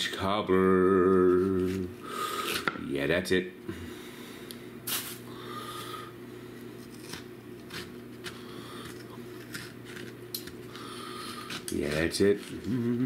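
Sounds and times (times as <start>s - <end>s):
steady low hum: 0.0s - 13.0s
knife scraping fruit: 6.8s - 13.0s.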